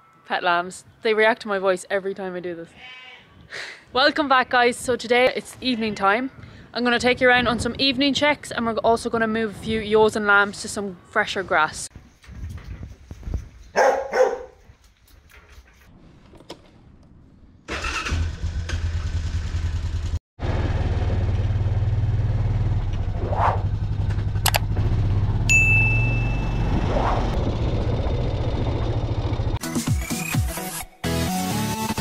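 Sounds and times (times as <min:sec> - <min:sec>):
quad bike engine running: 0:18.1 - 0:29.6.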